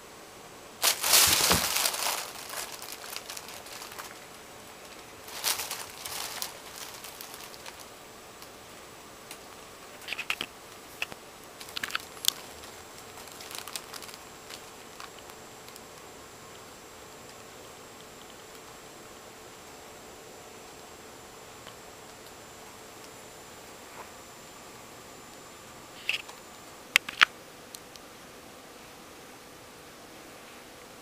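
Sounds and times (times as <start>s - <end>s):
plastic bag crinkling: 0.8s - 8.5s, 9.3s - 16.0s, 26.0s - 26.4s.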